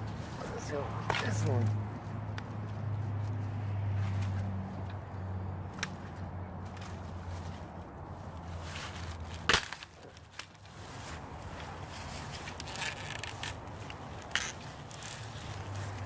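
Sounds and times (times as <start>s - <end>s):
twigs and leaves rustling: 0.0s - 16.0s
branch snapping: 5.7s - 6.9s, 9.1s - 10.7s, 12.2s - 16.0s.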